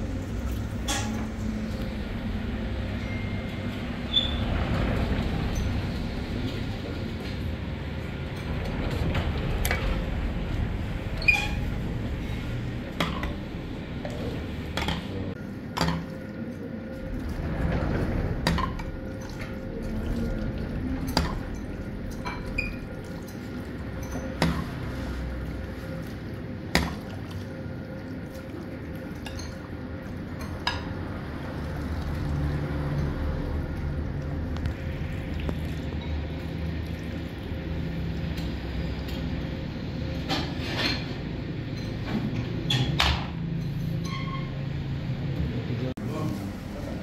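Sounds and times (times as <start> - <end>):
liquid splashing: 15.8 - 38.3.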